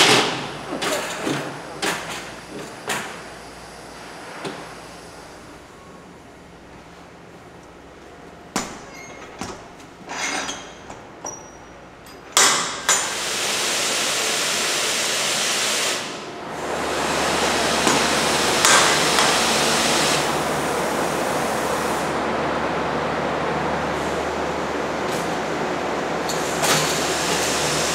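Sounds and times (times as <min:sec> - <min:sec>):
loud rushing hiss: 0:12.9 - 0:22.3.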